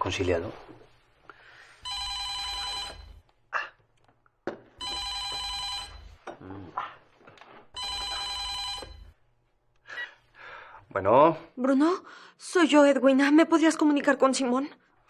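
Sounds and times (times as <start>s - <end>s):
telephone ringing: 1.8s - 3.3s, 4.8s - 6.2s, 7.7s - 9.2s.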